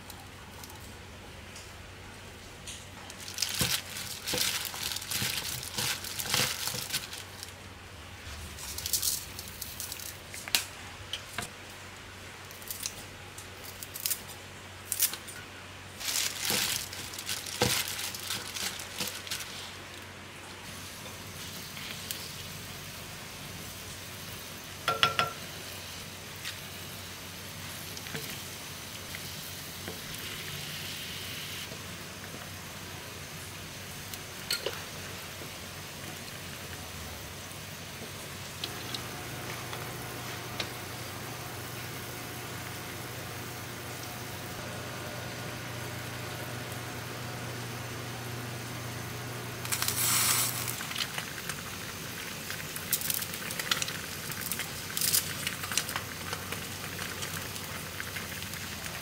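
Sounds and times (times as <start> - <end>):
plastic gloves crinkling: 3.0 - 7.6, 8.2 - 10.6, 16.0 - 20.1, 49.6 - 58.7.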